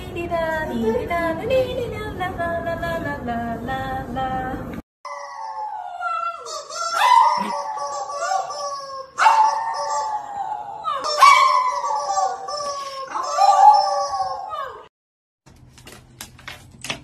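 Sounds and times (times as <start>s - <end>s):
dog howling: 5.1s - 14.9s.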